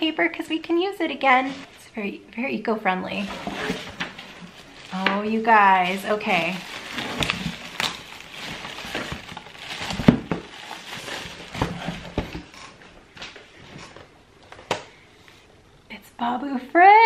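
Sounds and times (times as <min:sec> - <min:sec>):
paper and plastic wrapping rustling: 0:03.1 - 0:14.8
cardboard knocks and bumps: 0:07.0 - 0:12.5.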